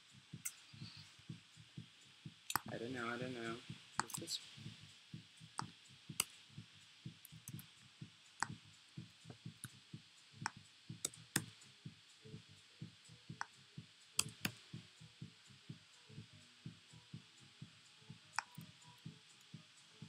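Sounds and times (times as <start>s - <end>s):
mouse clicks: 4.0s - 4.3s, 14.2s - 14.6s, 18.4s - 18.7s.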